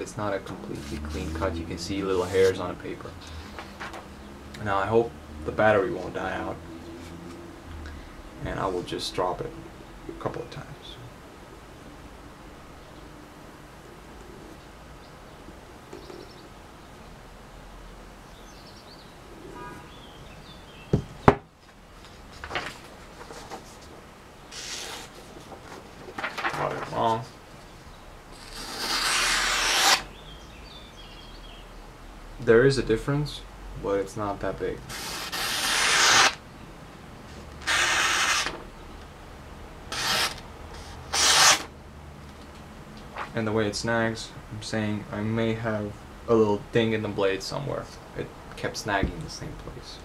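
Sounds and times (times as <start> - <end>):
paper rustling: 22.0 - 27.4, 34.9 - 36.4, 37.6 - 38.6, 39.9 - 41.7
knife slicing paper: 24.5 - 25.2, 28.4 - 30.1, 34.9 - 36.4, 37.6 - 38.6, 39.9 - 41.7.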